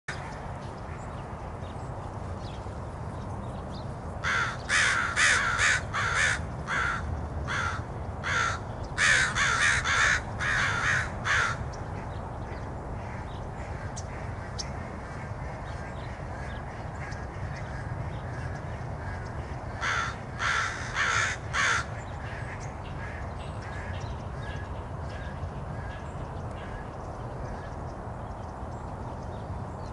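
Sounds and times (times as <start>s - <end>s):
crows cawing: 4.2s - 12.1s, 13.0s - 26.0s.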